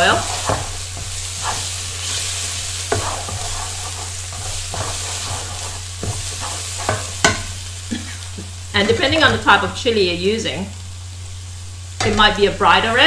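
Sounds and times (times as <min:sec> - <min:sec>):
spatula scraping a wok: 0:00.0 - 0:07.9
paste sizzling in hot oil: 0:00.0 - 0:13.0.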